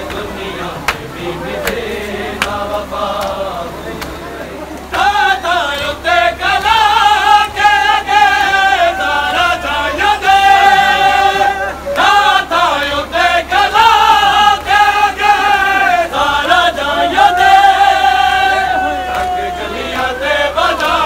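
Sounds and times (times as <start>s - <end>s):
men chanting: 0.0s - 21.0s
hands slapping chests: 2.4s - 2.6s.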